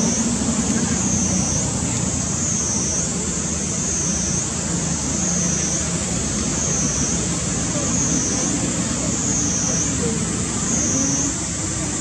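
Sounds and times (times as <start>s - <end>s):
outdoor background rumble: 0.0s - 12.0s.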